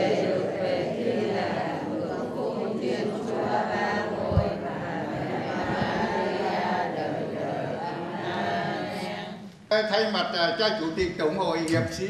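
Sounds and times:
group reciting prayer in unison: 0:00.0 - 0:09.6
low thump: 0:04.2 - 0:04.7.

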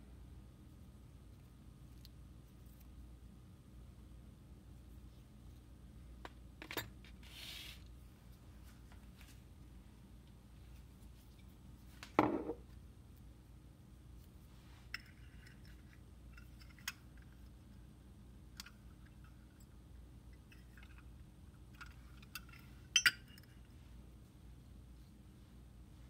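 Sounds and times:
metallic clinks: 0:22.2 - 0:23.6.

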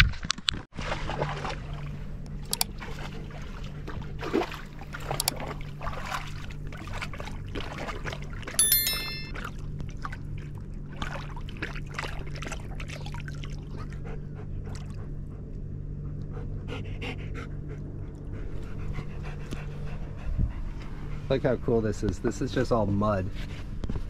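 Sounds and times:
dog lapping water: 0:02.8 - 0:08.4, 0:11.0 - 0:15.2
water splashing and trickling: 0:02.8 - 0:08.4
dog panting: 0:16.3 - 0:21.6.

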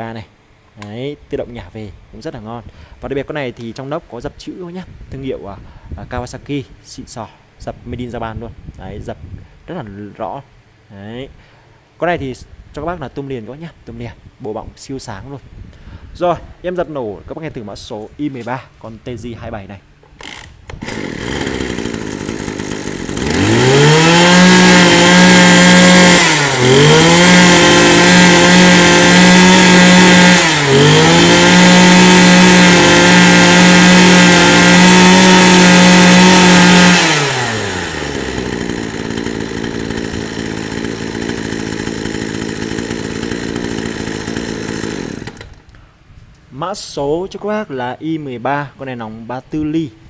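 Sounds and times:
brush cutter engine idling and revving: 0:20.2 - 0:45.7.

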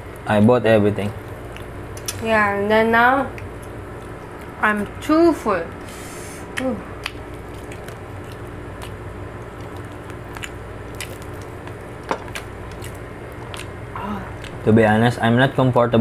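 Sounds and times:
steady low hum: 0:00.0 - 0:16.0
person chewing: 0:01.2 - 0:02.2, 0:06.1 - 0:14.7.

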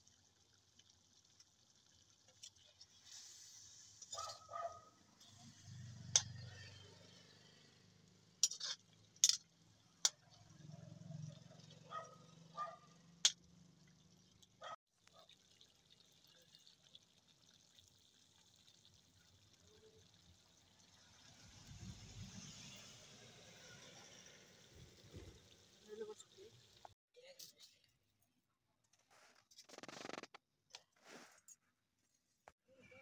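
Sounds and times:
metal ladle clinking on a pan: 0:08.4 - 0:09.4.

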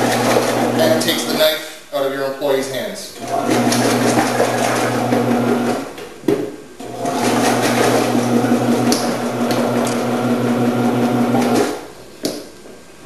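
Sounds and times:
vegetable cutter running: 0:00.0 - 0:01.3, 0:03.2 - 0:05.9, 0:06.8 - 0:11.8.

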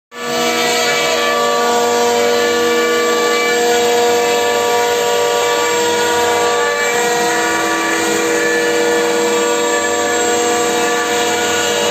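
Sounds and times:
machine running noise: 0:00.1 - 0:11.9
router spindle whine cutting wood: 0:00.1 - 0:11.9.

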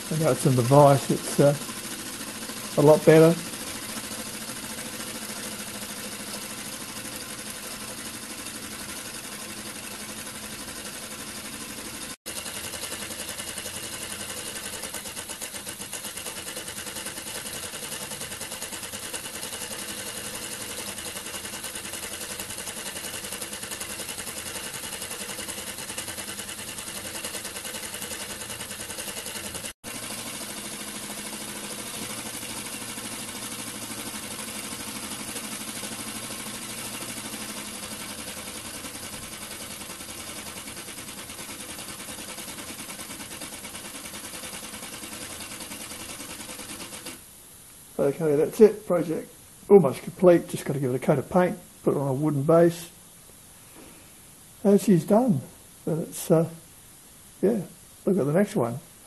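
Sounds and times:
model steam engine running fast: 0:00.0 - 0:47.2.

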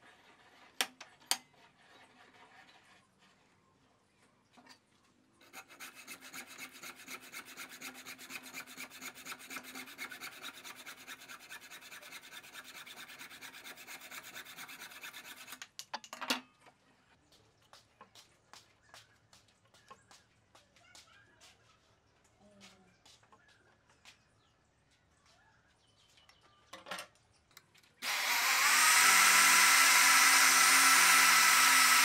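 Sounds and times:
hacksaw rasping through wood: 0:05.4 - 0:15.6, 0:28.0 - 0:32.0.

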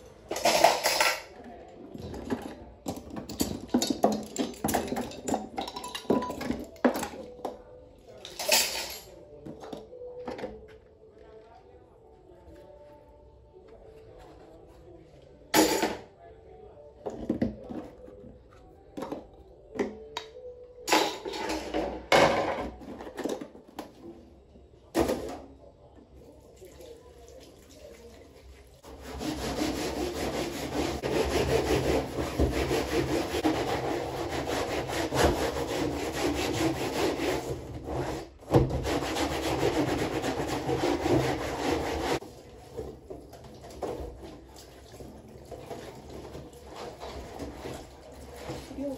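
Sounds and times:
mat scrubbed in metal sink: 0:28.8 - 0:42.8.

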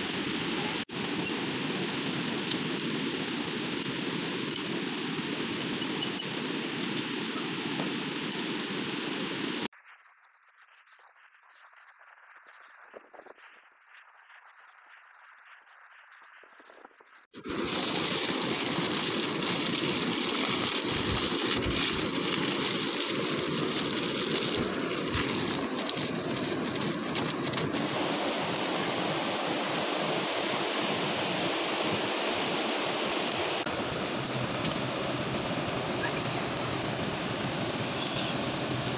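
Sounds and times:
aluminium foil crinkling: 0:09.8 - 0:27.9
steady rushing noise: 0:17.2 - 0:38.9.

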